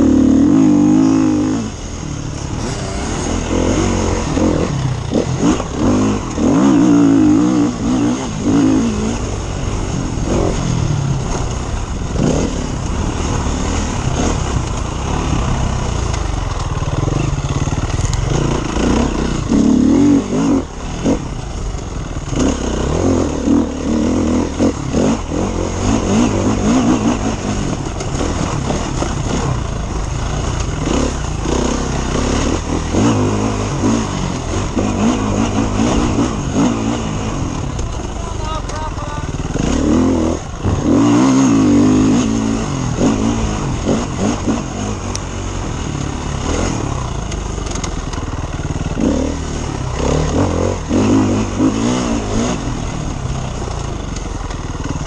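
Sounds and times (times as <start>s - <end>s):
motorcycle engine revving: 0.0s - 55.0s
motorcycle knocks and rattles: 2.2s - 22.9s, 24.0s - 55.0s.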